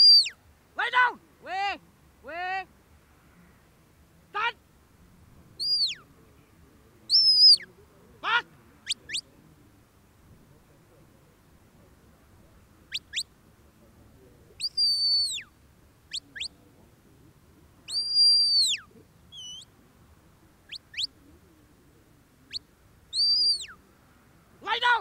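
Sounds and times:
shepherd's whistle commands: 0:00.0 - 0:00.4, 0:05.6 - 0:06.0, 0:07.1 - 0:07.6, 0:14.6 - 0:15.4, 0:17.9 - 0:18.8, 0:19.4 - 0:19.7, 0:23.2 - 0:23.7.

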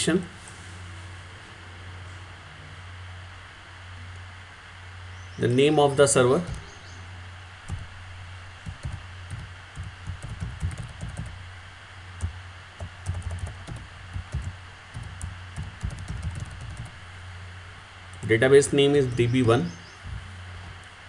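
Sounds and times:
low steady hum: 0:00.0 - 0:21.0
computer keyboard typing: 0:07.7 - 0:07.9, 0:08.6 - 0:11.4, 0:12.2 - 0:17.0.

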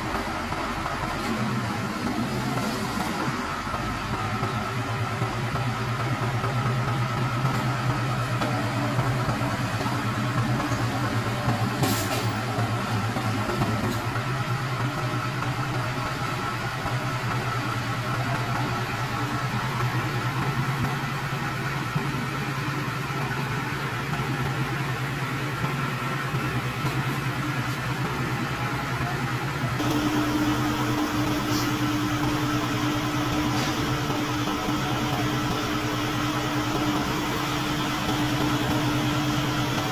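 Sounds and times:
truck engine idling: 0:00.0 - 0:39.9
higher steady tone: 0:29.8 - 0:39.9.

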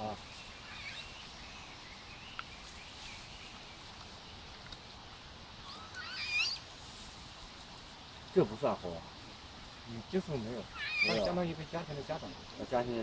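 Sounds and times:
high warbling animal call: 0:05.6 - 0:06.6, 0:10.7 - 0:11.4.

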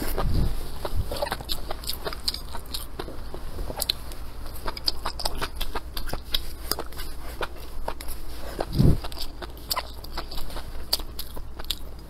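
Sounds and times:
wet chewing crunches: 0:00.0 - 0:12.0.

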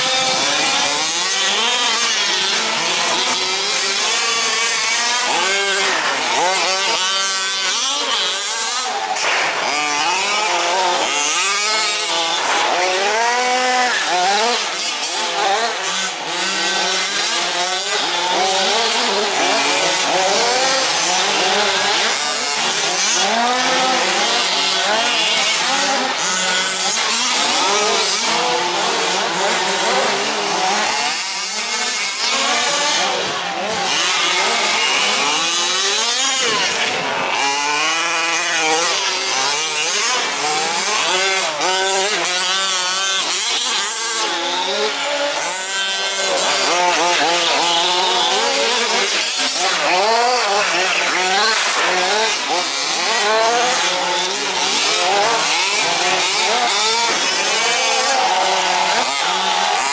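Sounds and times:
small engines revving and whining: 0:00.0 - 0:59.9.

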